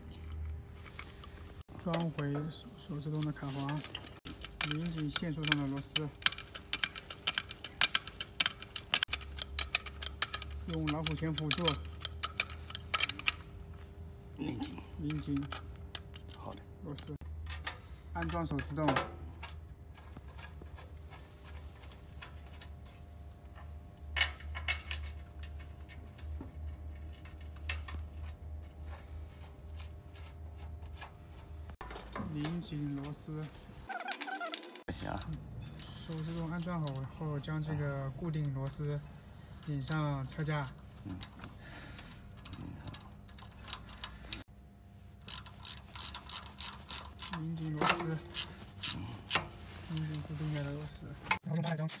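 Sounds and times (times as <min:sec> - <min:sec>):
hand tools clicking on metal: 0:01.7 - 0:13.5, 0:45.2 - 0:50.4.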